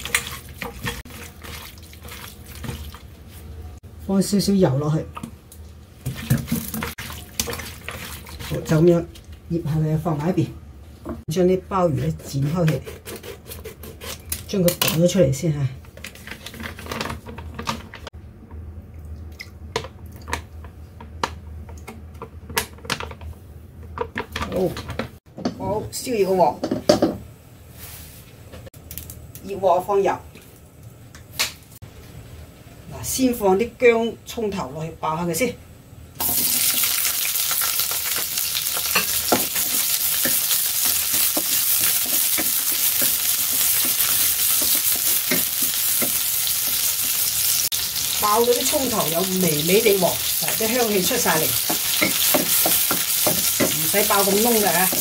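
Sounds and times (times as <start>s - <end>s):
drips and plops: 0.0s - 3.1s, 18.9s - 20.5s
food sizzling in hot oil: 36.2s - 55.0s
spatula tapping and scraping pan: 38.1s - 46.8s, 50.4s - 55.0s.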